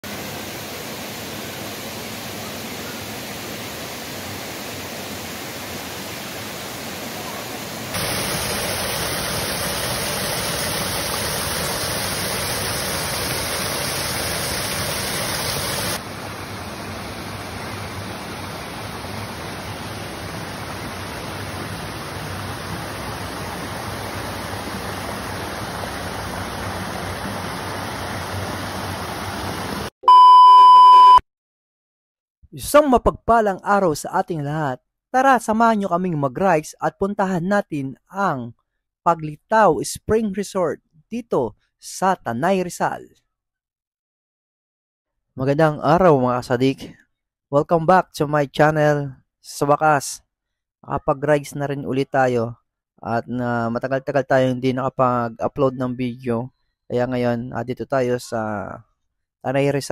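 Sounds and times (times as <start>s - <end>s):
water pouring over rock ledges: 8.0s - 16.0s.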